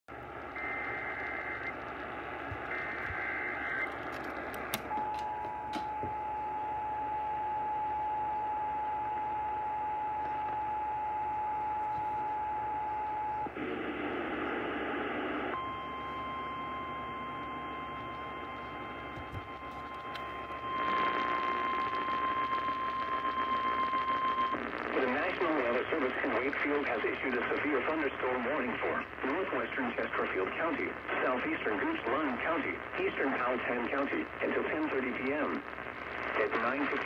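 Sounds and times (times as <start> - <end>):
radio static hiss: 0.1 - 5.1, 11.8 - 16.4, 17.2 - 37.0.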